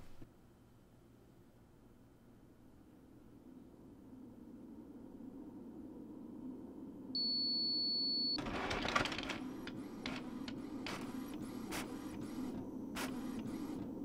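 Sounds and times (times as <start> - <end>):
printer beep: 7.2 - 13.8
printer clacks: 8.4 - 13.9
printer mechanism running: 8.4 - 14.0.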